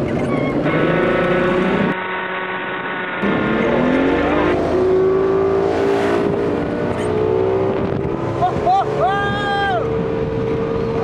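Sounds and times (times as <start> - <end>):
motor speeding up: 0.6 - 8.7.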